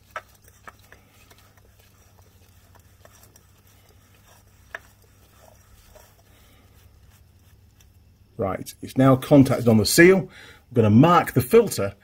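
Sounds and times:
oil filter rubbing and clicking: 0:00.0 - 0:08.4
low steady hum: 0:00.0 - 0:12.0.

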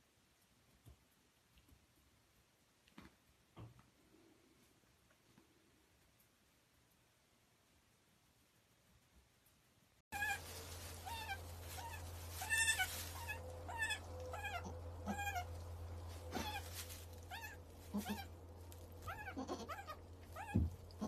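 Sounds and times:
low steady hum: 0:00.0 - 0:21.0
goat kids bleating: 0:10.2 - 0:21.0.

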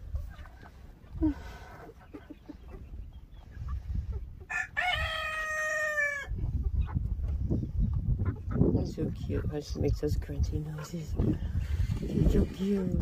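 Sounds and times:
rooster crowing: 0:04.5 - 0:06.3.

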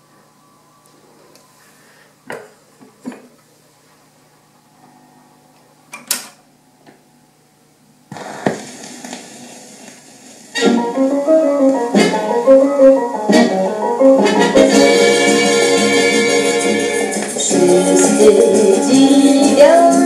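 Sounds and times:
faint hum: 0:00.0 - 0:12.8
record surface hiss and crackle: 0:00.0 - 0:20.0
stylus thump on record: 0:08.1 - 0:09.2.

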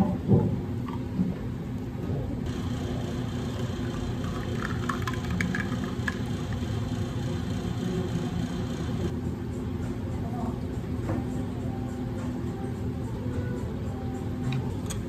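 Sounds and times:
low machine hum: 0:00.0 - 0:15.0
milk pouring into glass: 0:03.8 - 0:06.6
ice cubes clinking: 0:04.4 - 0:06.2.

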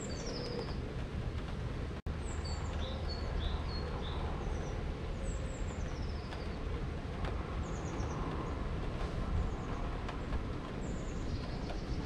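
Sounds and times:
small birds chirping: 0:00.0 - 0:00.9, 0:02.1 - 0:06.6, 0:07.6 - 0:08.7, 0:09.3 - 0:12.0
low outdoor rumble: 0:00.0 - 0:12.0.

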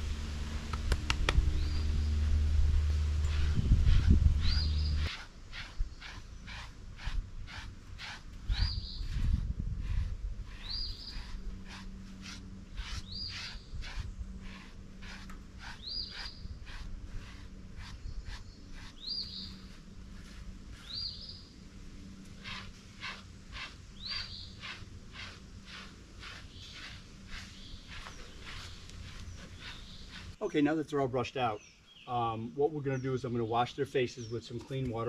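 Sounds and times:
low rumble: 0:00.0 - 0:05.1
brush scratching through coat: 0:02.8 - 0:30.4.

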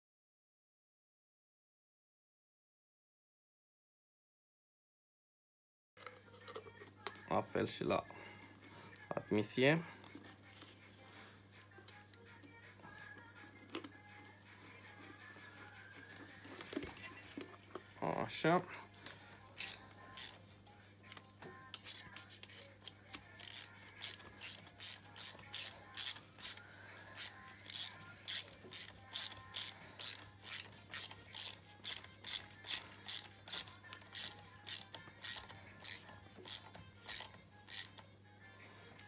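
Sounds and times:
ratchet wrench clicking: 0:19.6 - 0:20.4, 0:23.4 - 0:26.6, 0:27.2 - 0:38.0.

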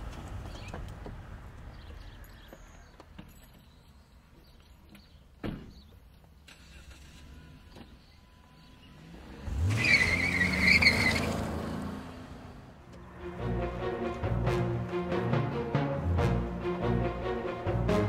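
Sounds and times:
car engine revving: 0:08.6 - 0:14.5
tyres squealing: 0:09.4 - 0:11.5
music: 0:13.0 - 0:18.0.

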